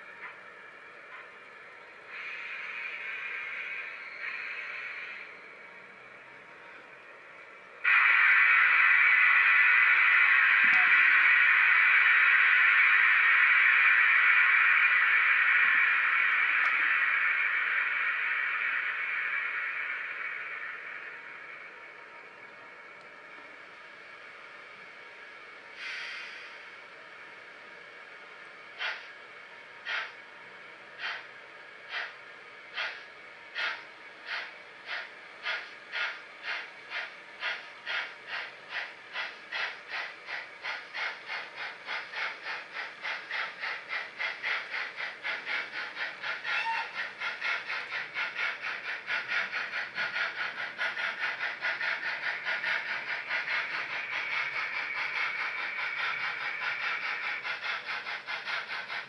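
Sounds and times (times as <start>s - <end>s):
steam locomotive exhaust chuffs: 0.0s - 59.0s
steam hiss from small speaker: 2.0s - 6.1s, 7.8s - 23.5s, 24.2s - 59.0s.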